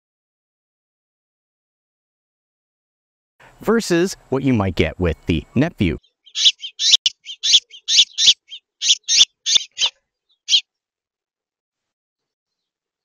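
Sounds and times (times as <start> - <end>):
songbird chirping: 3.5 - 10.8.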